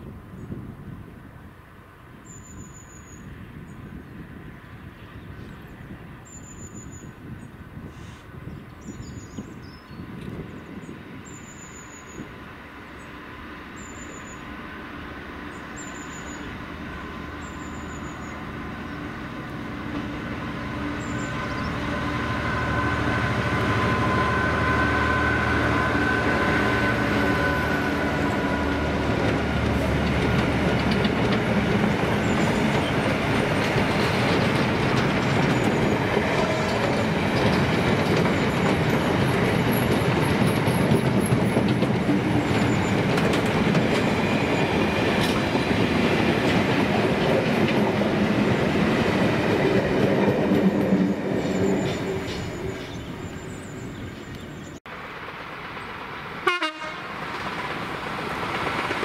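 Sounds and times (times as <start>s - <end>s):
diesel locomotive engine: 0.0s - 59.0s
freight wagons clattering over rails: 29.1s - 53.1s.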